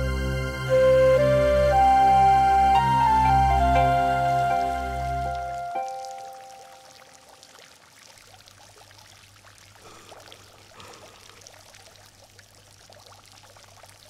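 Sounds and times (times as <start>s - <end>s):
water trickling: 3.0s - 14.0s.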